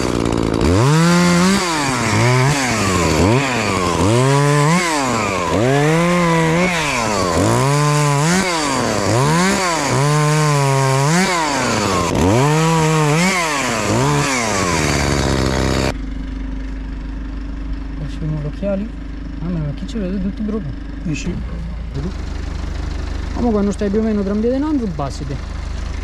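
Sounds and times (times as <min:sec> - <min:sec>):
chainsaw revving cutting wood: 0:00.0 - 0:16.0.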